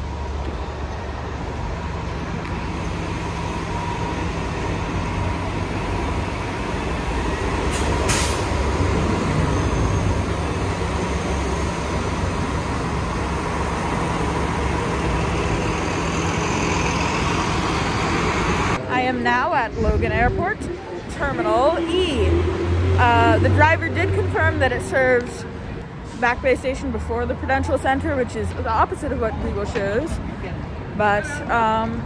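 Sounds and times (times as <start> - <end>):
bus engine idling: 0.0 - 19.1.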